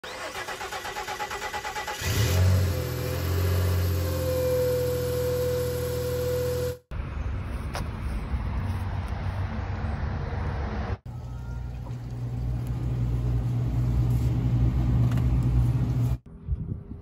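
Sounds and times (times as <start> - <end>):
starter motor cranking: 0.0 - 2.4
engine whine: 10.5 - 16.7.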